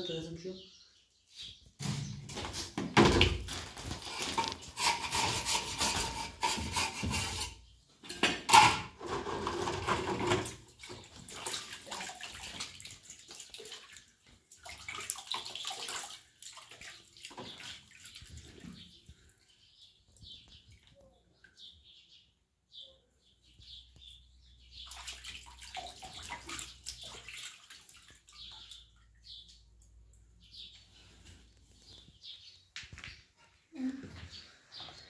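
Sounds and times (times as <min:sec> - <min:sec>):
hands splashing in water basin: 0:10.3 - 0:18.8, 0:24.8 - 0:29.1.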